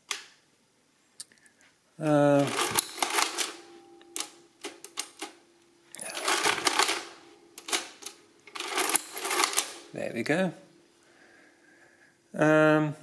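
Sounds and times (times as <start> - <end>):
adding machine mechanism clattering: 2.4 - 5.4, 6.0 - 10.0.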